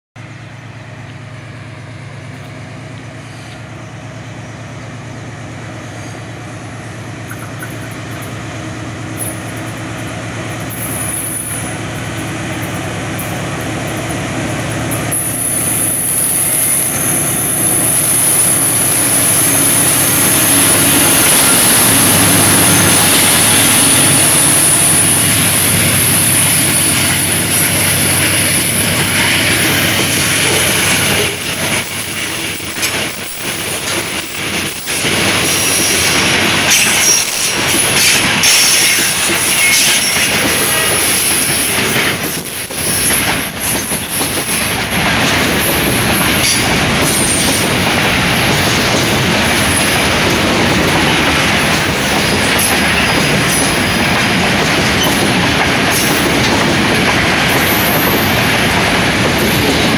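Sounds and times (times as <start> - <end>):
locomotive engine rumble: 0.2 - 59.9
train wagons rolling past: 0.2 - 59.9
high wheel squeal: 15.1 - 44.7, 46.2 - 47.8.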